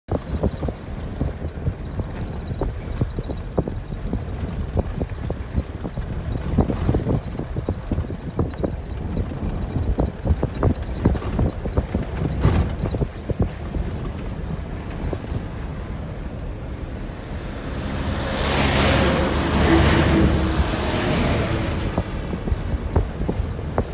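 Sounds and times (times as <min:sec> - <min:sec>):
knocks and clunks over bumps: 0:00.1 - 0:16.4, 0:19.2 - 0:23.9
vehicle rumble on dirt road: 0:00.1 - 0:23.9
oncoming truck rushing: 0:00.2 - 0:23.9.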